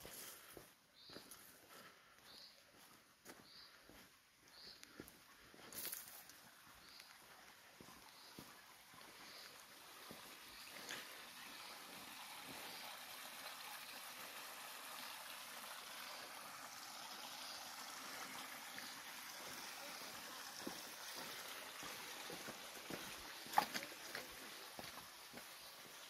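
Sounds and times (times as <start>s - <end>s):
footsteps on loose stones: 0.0s - 11.1s, 20.3s - 26.0s
stream trickling over stones: 5.6s - 26.0s.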